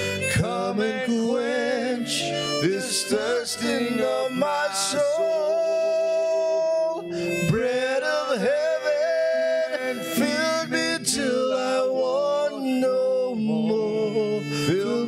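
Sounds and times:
instrumental accompaniment: 0.0 - 15.0
person singing long notes: 0.0 - 15.0.

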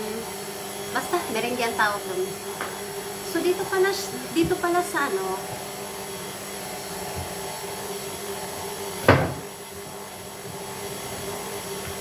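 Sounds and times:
stand mixer whisking: 0.0 - 12.0
sharp knock: 9.1 - 9.4.

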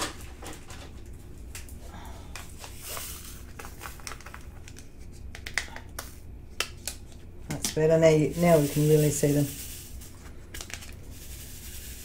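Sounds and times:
plastic bags crinkling: 2.6 - 5.0
small beads poured into plastic tray: 8.2 - 10.2, 11.0 - 12.0.

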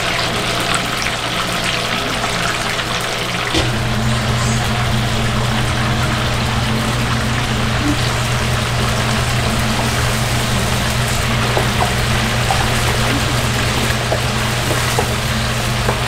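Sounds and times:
deep-frying sizzle: 0.0 - 16.0
low hum: 3.5 - 16.0.

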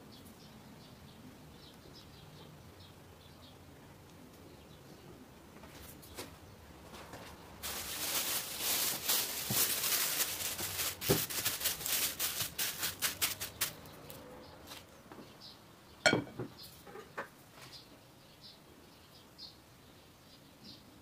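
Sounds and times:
plastic film crinkling: 7.6 - 13.9.

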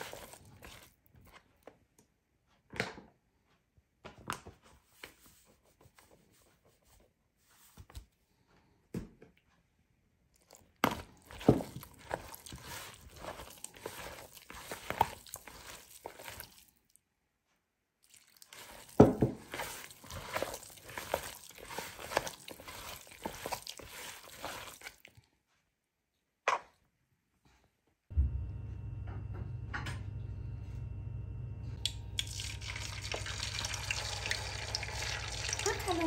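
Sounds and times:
wet squishing of potato strips: 0.0 - 1.4, 10.3 - 17.1, 18.0 - 25.6, 32.2 - 36.0
crunchy rustling of strips: 10.4 - 17.0, 18.0 - 25.6.

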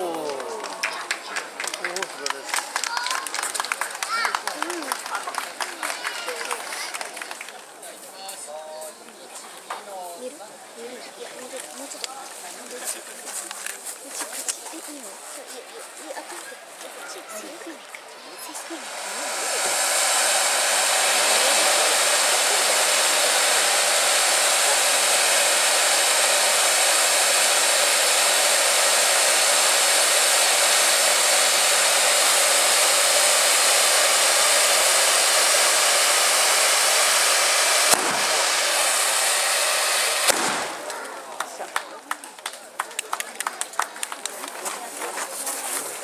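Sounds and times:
firework fountain hissing: 0.0 - 46.0
sharp cracks: 22.8 - 41.2.

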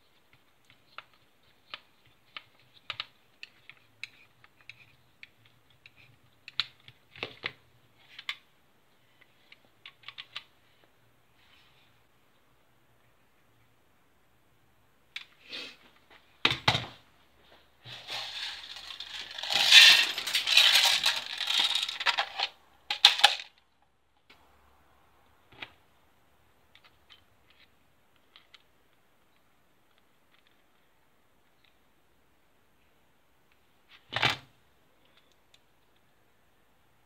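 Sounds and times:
plastic parts clicking and rattling: 0.3 - 8.5, 9.1 - 10.5, 17.8 - 23.6, 26.7 - 28.7.

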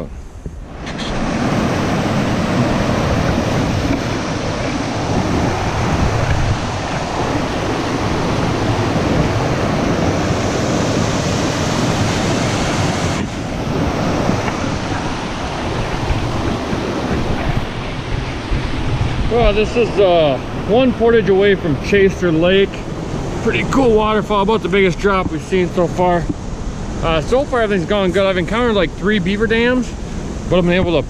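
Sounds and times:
waterfall rushing over rocks: 0.7 - 22.4.

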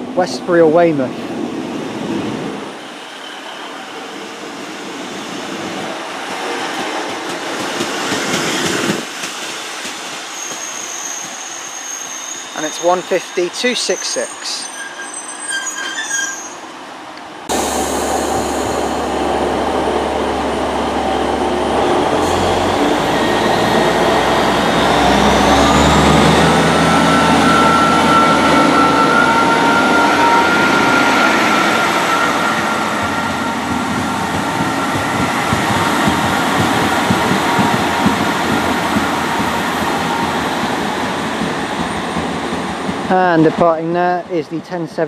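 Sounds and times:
train diesel engines revving: 1.9 - 42.9
rising whine: 17.5 - 35.6.

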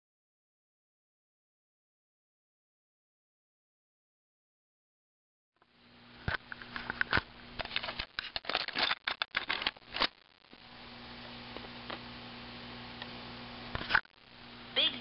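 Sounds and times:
faint steady hum: 5.6 - 15.0
plastic clicks and rustles: 6.3 - 10.3.

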